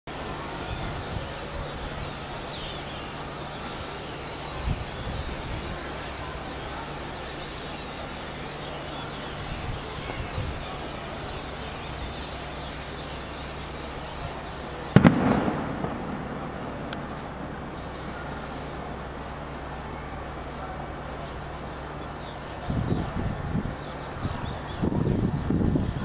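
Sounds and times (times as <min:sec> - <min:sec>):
city traffic hum: 0:00.1 - 0:26.0
flock of birds chirping: 0:00.1 - 0:26.0
loud bang with rumble: 0:14.9 - 0:19.2.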